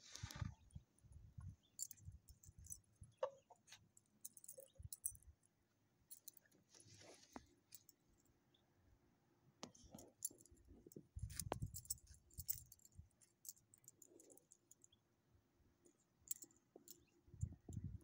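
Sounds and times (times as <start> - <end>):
dog collar tags jingling: 1.8 - 5.3, 9.9 - 15.0, 16.3 - 17.8.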